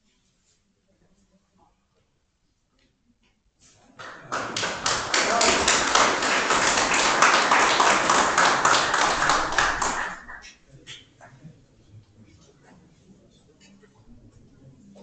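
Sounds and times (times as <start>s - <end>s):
many hands clapping: 4.0s - 10.6s.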